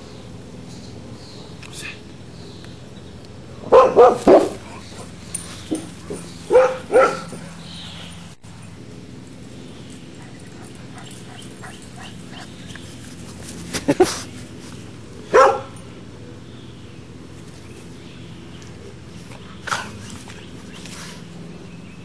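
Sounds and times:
dog barking in play: 3.7s - 4.8s, 5.7s - 7.4s, 15.3s - 15.8s.

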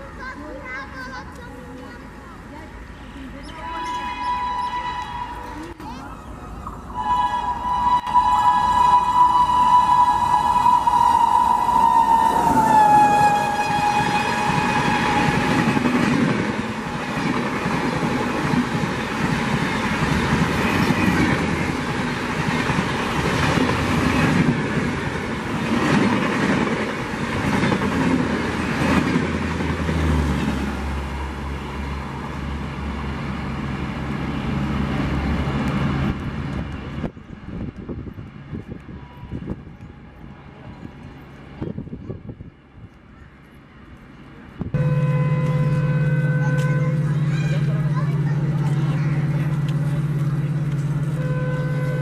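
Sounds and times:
train passing at speed: 0.0s - 52.0s
train horn: 3.6s - 5.7s, 7.0s - 16.0s, 44.8s - 52.0s
low engine drone: 44.7s - 52.0s.

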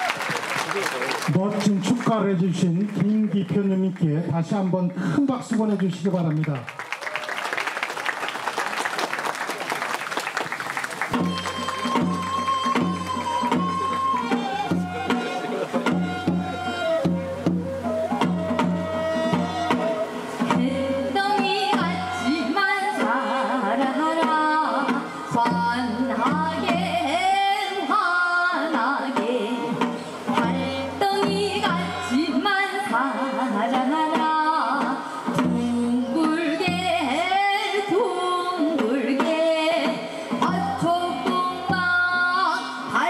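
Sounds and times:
instrumental accompaniment: 9.8s - 43.0s
drum beat: 10.4s - 22.1s, 29.8s - 32.0s.

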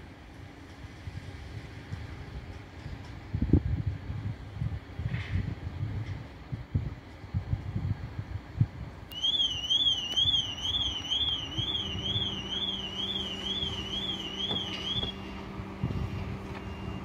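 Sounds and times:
wind buffeting microphone: 0.8s - 17.0s
warbling electronic warning tone: 10.6s - 15.4s.

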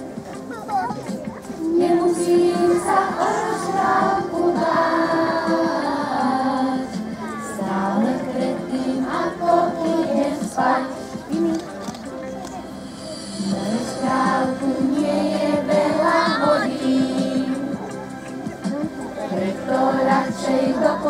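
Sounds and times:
children singing in unison: 1.7s - 11.6s, 13.1s - 17.9s, 19.2s - 21.0s.

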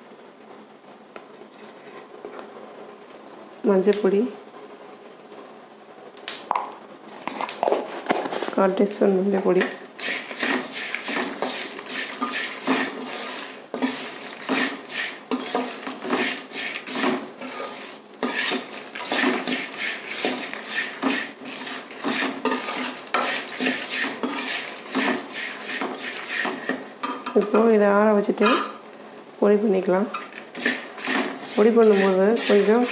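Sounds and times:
ladle scraping metal pan: 9.6s - 27.7s, 28.3s - 28.8s, 30.1s - 32.9s.

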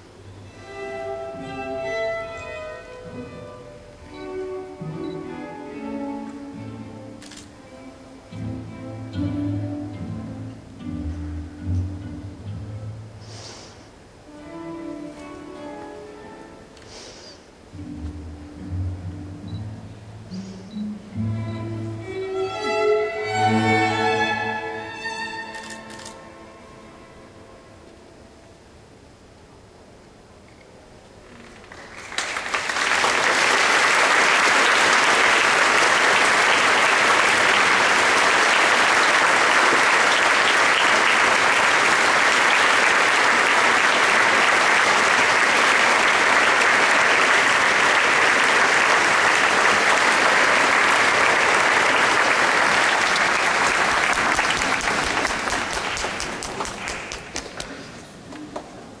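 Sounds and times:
large audience applauding: 31.3s - 57.9s.

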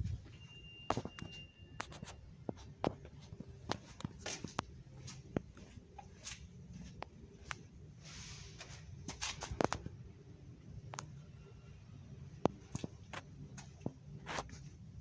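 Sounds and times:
high steady tone: 0.0s - 2.2s
low steady hum: 0.0s - 15.0s.

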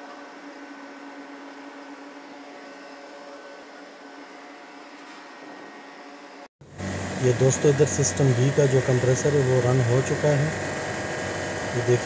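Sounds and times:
machinery hum: 0.1s - 12.0s.

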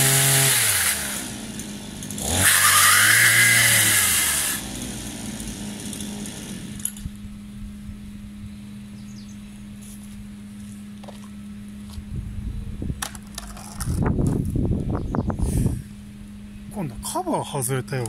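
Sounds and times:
pole chainsaw engine revving: 0.0s - 7.0s.

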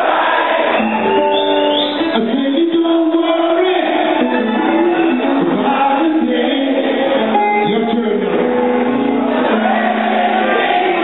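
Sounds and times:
live reggae band playing: 0.4s - 11.0s
person singing: 2.0s - 8.6s.

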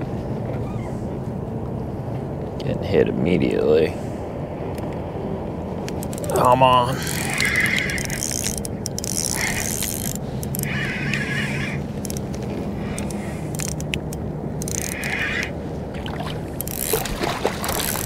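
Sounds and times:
spinning reel cranking: 7.0s - 12.2s, 12.9s - 13.8s, 14.6s - 15.5s, 16.6s - 17.1s, 17.7s - 18.0s
water splashing: 14.9s - 18.0s.

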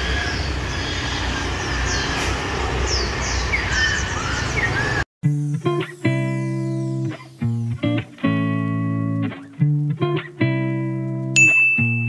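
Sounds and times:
birds chirping: 0.0s - 5.1s, 5.7s - 9.4s
street traffic rumble: 0.0s - 5.1s
guitar music: 5.2s - 12.0s.

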